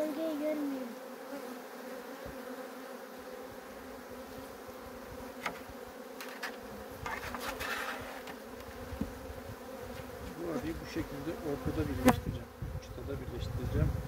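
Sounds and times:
honeybees buzzing: 0:00.0 - 0:14.0
wood knocking on wood: 0:05.4 - 0:05.6.

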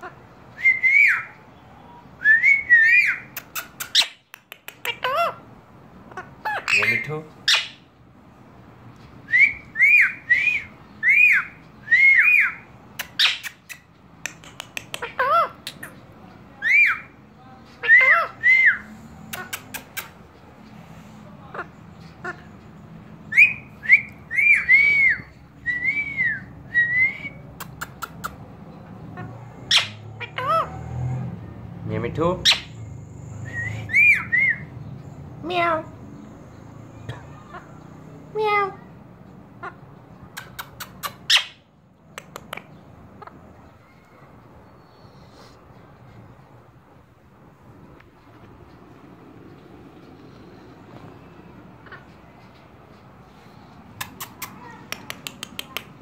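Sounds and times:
parakeet whistling: 0:00.6 - 0:01.4, 0:02.2 - 0:04.2, 0:06.5 - 0:07.8, 0:09.2 - 0:13.9, 0:17.8 - 0:20.1, 0:23.3 - 0:28.3, 0:29.7 - 0:30.7, 0:32.4 - 0:32.7, 0:33.4 - 0:34.8
parakeet clicks: 0:03.3 - 0:05.1, 0:12.9 - 0:16.0, 0:19.3 - 0:20.2, 0:27.6 - 0:28.4, 0:40.3 - 0:41.3, 0:42.1 - 0:42.8, 0:54.0 - 0:56.0
quick clicks: 0:13.0 - 0:15.0, 0:54.0 - 0:56.0.

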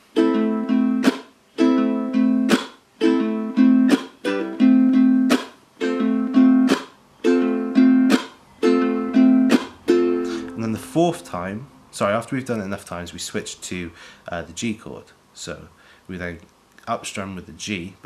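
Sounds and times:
muted ukulele strum: 0:00.0 - 0:11.2
fingerpicked ukulele notes: 0:00.1 - 0:11.2.

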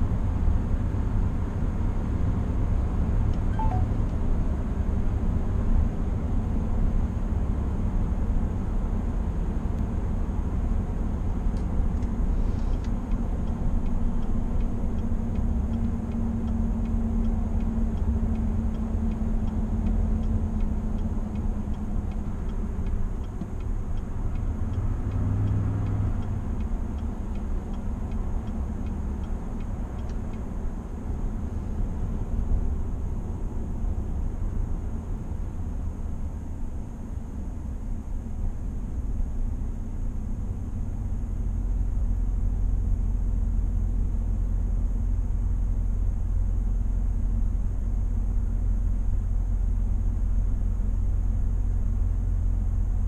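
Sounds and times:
road and tyre noise in car: 0:00.0 - 0:53.0
faint regular ticking: 0:11.9 - 0:30.9.

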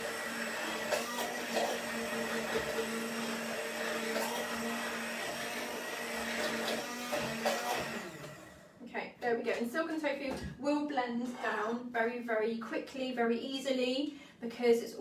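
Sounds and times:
electric blender running: 0:00.0 - 0:08.8.

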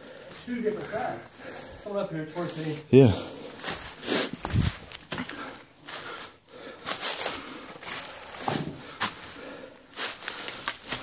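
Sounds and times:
footsteps on dry leaves: 0:09.0 - 0:11.0.

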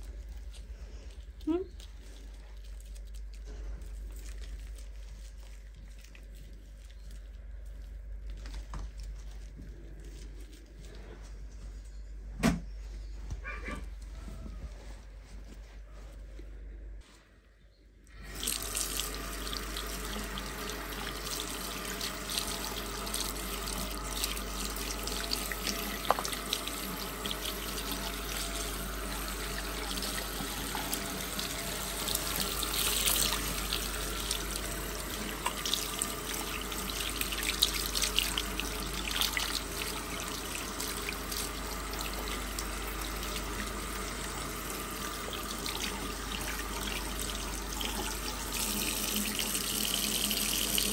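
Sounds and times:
tap water running into sink: 0:18.2 - 0:50.9.

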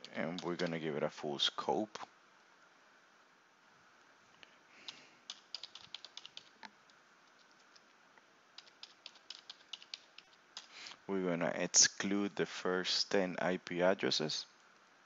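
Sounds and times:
room hiss: 0:00.0 - 0:15.0
keyboard keystrokes: 0:04.9 - 0:06.5, 0:08.6 - 0:10.7.

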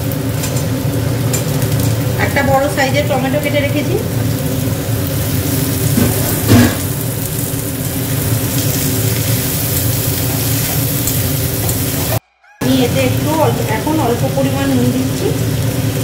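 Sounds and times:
vegetables sizzling in hot oil: 0:00.0 - 0:16.0
loud clank against pan: 0:06.0 - 0:07.0.

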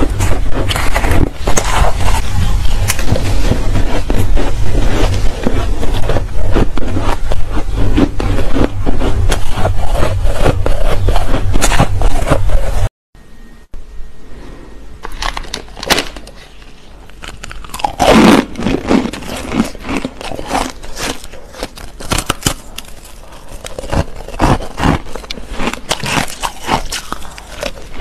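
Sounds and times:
chewing crushed ice crunches: 0:00.0 - 0:12.7, 0:15.0 - 0:28.0.

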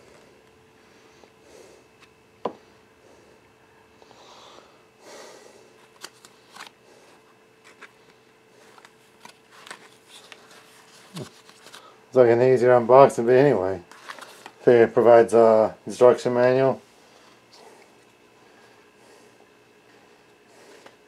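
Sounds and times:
faint steady hum: 0:00.0 - 0:21.0
paper rustling: 0:08.6 - 0:11.9, 0:13.9 - 0:14.6.

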